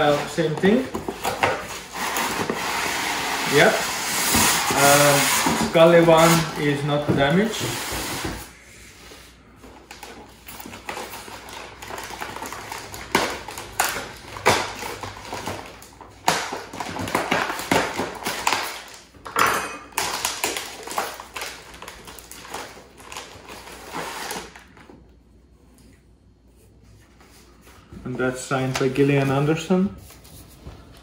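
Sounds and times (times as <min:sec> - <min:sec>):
cardboard and packing rustling: 0:00.0 - 0:08.5, 0:26.6 - 0:31.0.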